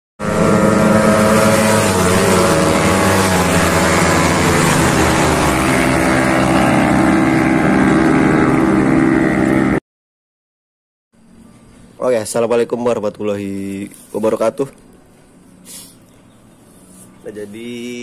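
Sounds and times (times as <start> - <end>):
loud engine running: 0.2 - 9.8.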